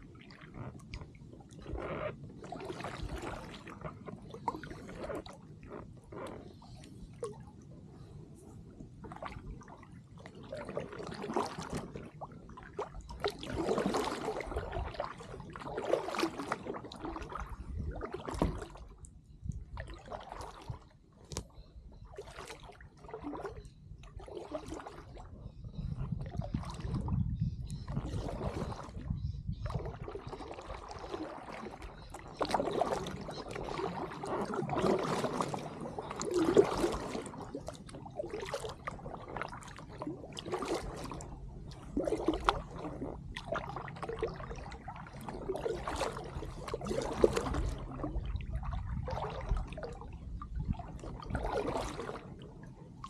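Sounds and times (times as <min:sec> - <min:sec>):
paddle strokes swishing water: 0:00.0 - 0:53.0.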